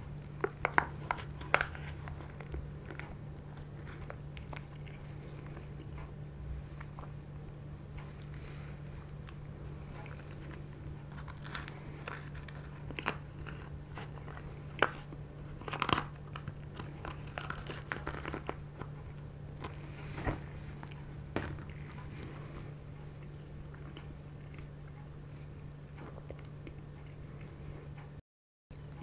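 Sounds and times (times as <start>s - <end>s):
close-up chewing: 0.0s - 28.0s
foil crinkling: 0.4s - 4.7s, 11.1s - 20.7s
plastic spoon scraping foil cup: 10.3s - 18.9s.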